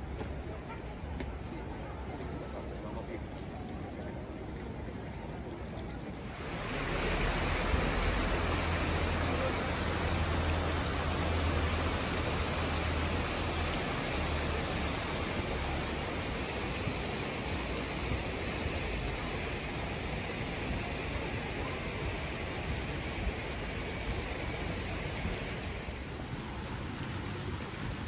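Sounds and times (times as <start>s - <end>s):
water rushing through wooden troughs: 6.2s - 28.0s.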